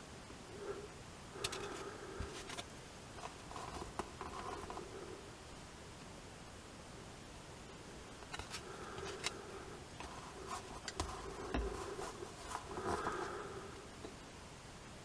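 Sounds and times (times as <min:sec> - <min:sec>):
metal tool scraping on card: 0:03.2 - 0:04.9, 0:10.0 - 0:13.3.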